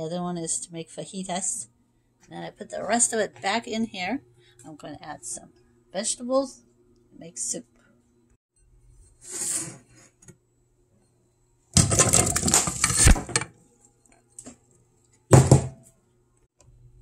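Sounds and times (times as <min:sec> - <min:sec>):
vegetables clattering into a metal pot: 0:11.8 - 0:13.5.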